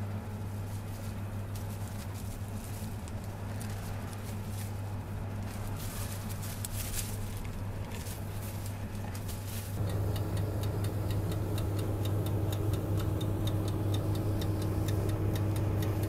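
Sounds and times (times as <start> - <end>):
low electrical hum: 0.0 - 16.0
plastic gloves crinkling: 0.4 - 9.8
light clicks and taps: 9.8 - 16.0.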